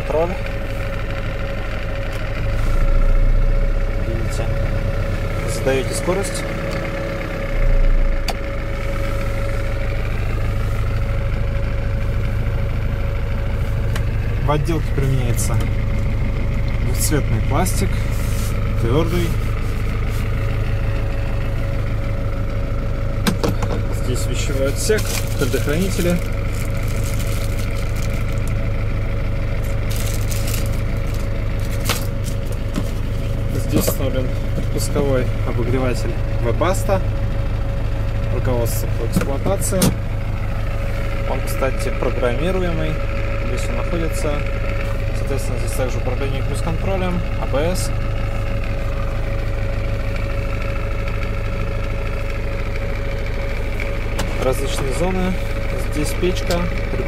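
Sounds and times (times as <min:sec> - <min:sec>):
diesel engine idling: 0:00.0 - 0:57.0
plastic bag crinkling: 0:25.0 - 0:28.5, 0:29.6 - 0:33.1.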